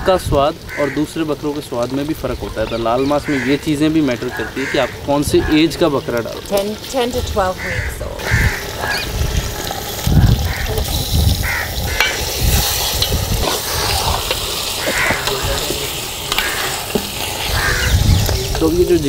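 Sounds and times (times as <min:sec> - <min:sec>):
meat sizzling in hot oil: 0:00.0 - 0:19.0
steel ladle scraping a pot: 0:08.5 - 0:10.0, 0:10.8 - 0:18.6.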